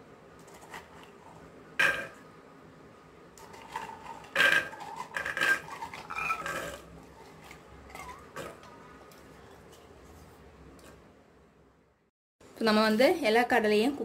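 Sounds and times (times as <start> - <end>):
metal bowl clanking: 1.8 - 2.2, 3.4 - 8.7.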